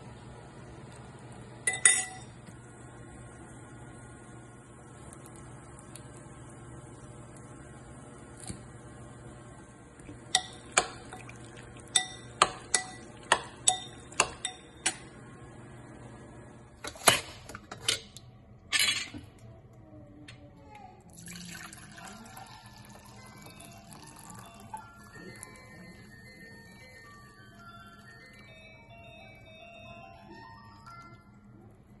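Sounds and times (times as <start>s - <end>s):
metal spoon clinking glass bowl: 1.7s - 2.3s, 11.9s - 15.0s
liquid pouring into glass jug: 10.4s - 12.3s, 21.1s - 25.8s.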